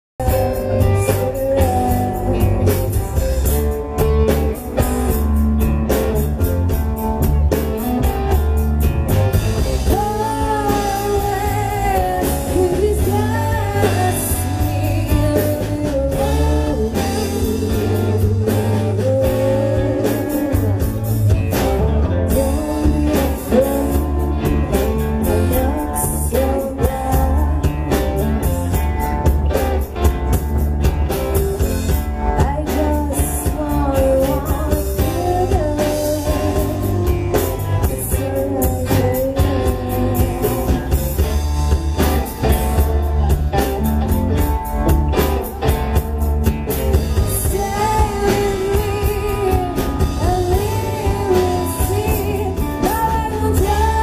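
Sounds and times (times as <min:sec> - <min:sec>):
blues-rock band playing: 0:00.0 - 0:54.0
woman singing: 0:00.2 - 0:05.2, 0:09.8 - 0:29.8, 0:32.2 - 0:43.3, 0:47.2 - 0:54.0.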